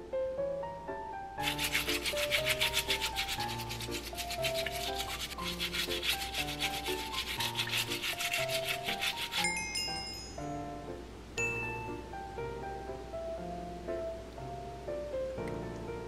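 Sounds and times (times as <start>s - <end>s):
light background music: 0.0s - 16.0s
brush scrubbing shellfish: 1.4s - 9.6s.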